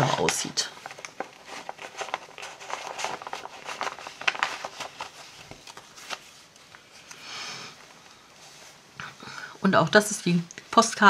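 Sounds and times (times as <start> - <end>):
paper rustling and scraping: 0.0 - 7.1
paper crinkles: 0.0 - 7.2.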